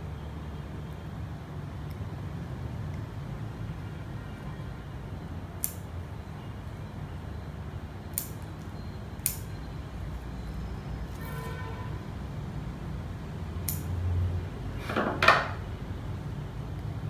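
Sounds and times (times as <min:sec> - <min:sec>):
scissors snipping twigs: 0:05.6 - 0:05.9, 0:08.1 - 0:09.5, 0:13.6 - 0:14.0.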